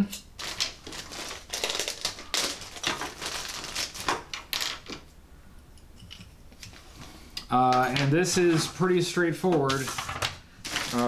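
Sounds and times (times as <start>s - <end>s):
plastic bag rustling: 0.4s - 5.0s, 9.7s - 11.0s.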